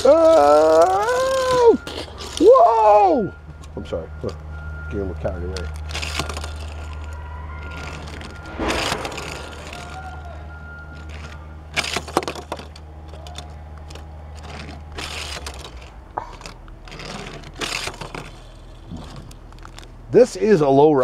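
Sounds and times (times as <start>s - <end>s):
steady low hum: 5.8s - 11.8s.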